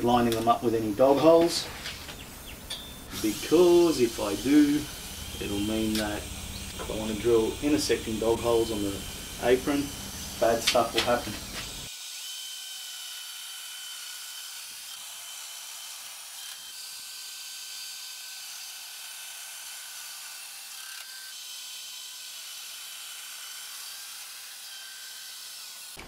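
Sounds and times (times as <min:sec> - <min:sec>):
joiner motor whine: 0:00.0 - 0:11.9.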